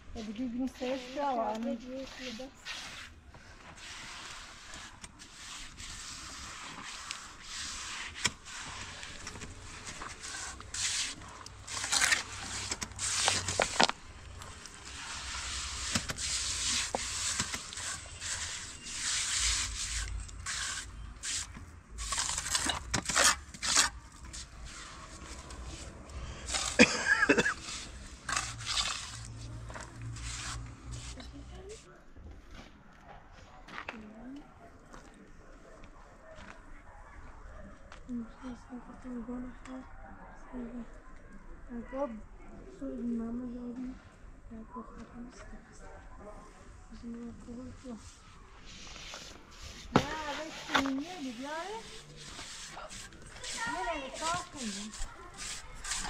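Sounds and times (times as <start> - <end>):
scraping and rubbing: 0.2 - 31.9, 47.4 - 56.0.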